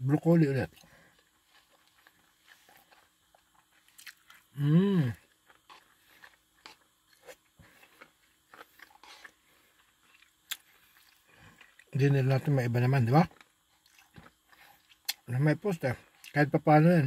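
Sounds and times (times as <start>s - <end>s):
chewing mouth sounds: 1.5s - 12.0s
person humming mm: 4.5s - 5.2s.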